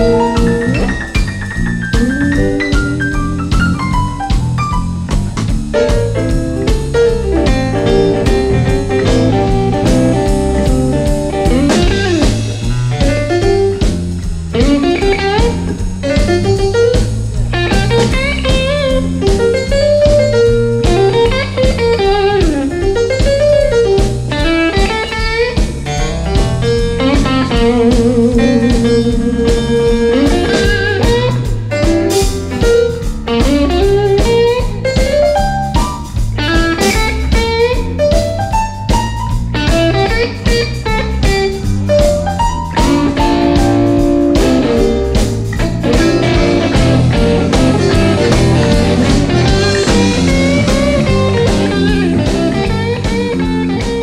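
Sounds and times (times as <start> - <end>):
bass and drum beat: 0.0 - 54.0
bluesy electric guitar melody: 0.0 - 54.0.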